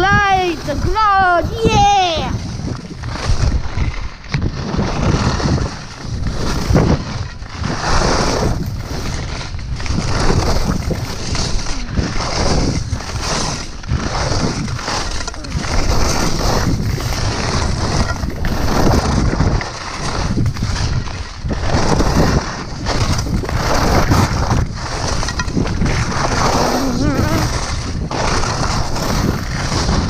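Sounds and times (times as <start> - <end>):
skis scraping over snow: 0.0 - 30.0
wind rushing over microphone: 0.0 - 30.0.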